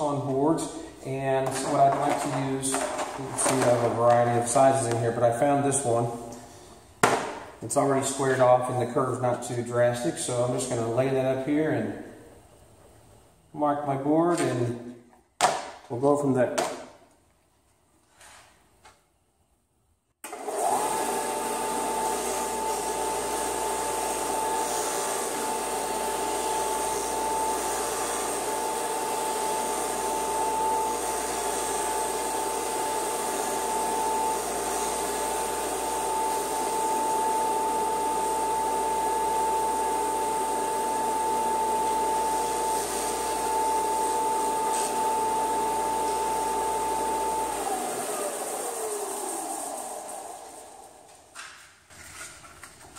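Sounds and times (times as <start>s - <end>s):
sander motor whining: 20.3s - 51.5s.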